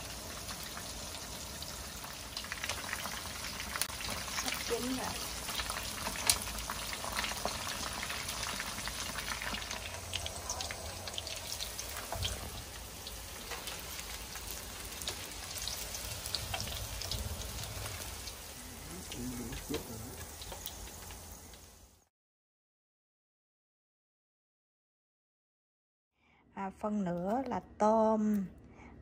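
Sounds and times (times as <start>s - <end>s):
deep-frying sizzle with pops: 0.0s - 22.1s.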